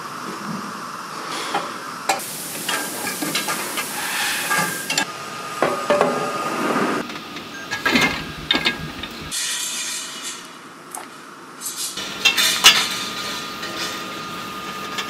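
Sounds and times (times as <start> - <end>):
steady hiss: 1.1 - 5.2
steel shafts clattering on metal: 7.5 - 9.4, 11.7 - 14.1.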